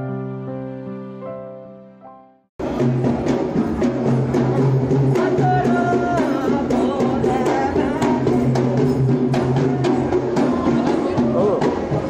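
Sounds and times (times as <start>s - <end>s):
drums keeping a steady beat: 2.6s - 12.0s.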